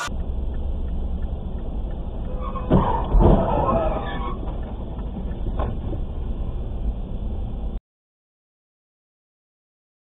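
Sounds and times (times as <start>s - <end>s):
car engine rumble: 0.0s - 7.8s
car crash impacts: 2.5s - 4.3s.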